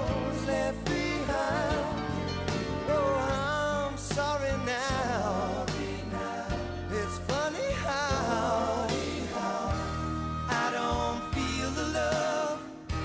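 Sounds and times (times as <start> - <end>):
bass line: 0.0 - 13.0
drums: 0.0 - 13.0
man singing: 2.9 - 9.8, 10.5 - 13.0.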